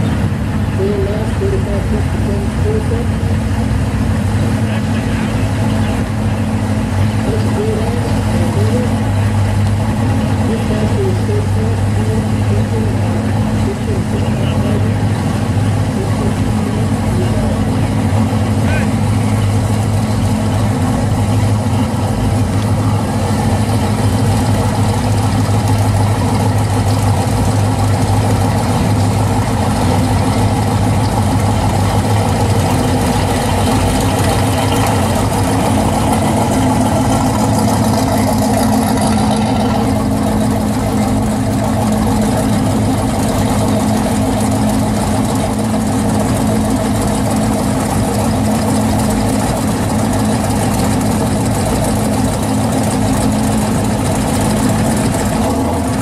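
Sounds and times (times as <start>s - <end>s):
car engine idling: 0.0s - 56.0s
second car idling: 0.0s - 56.0s.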